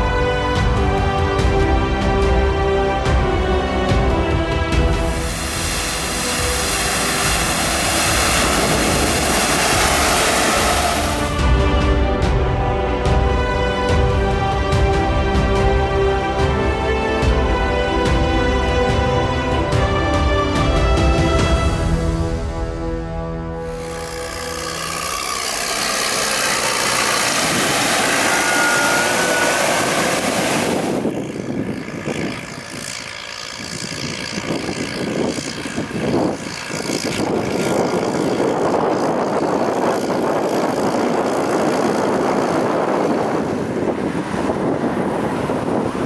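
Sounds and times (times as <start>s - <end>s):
tractor engines running: 0.0s - 21.8s, 23.5s - 46.0s
water rushing and splashing: 4.7s - 11.9s, 23.7s - 31.2s.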